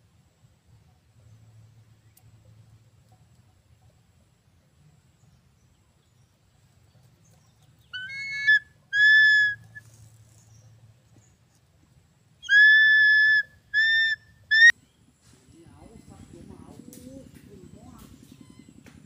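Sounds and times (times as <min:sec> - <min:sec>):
eagle calling: 0:07.8 - 0:10.0, 0:12.4 - 0:14.8.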